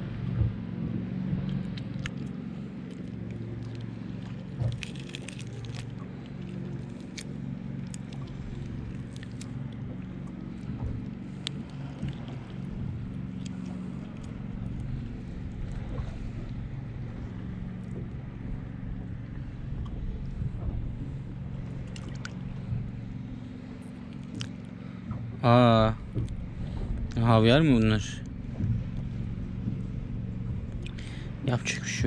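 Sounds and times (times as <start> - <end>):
low engine hum: 0.0 - 32.0.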